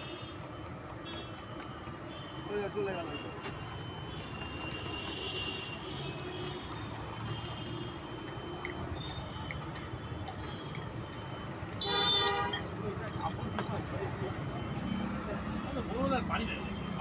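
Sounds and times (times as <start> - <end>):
busy street noise: 0.0 - 17.0.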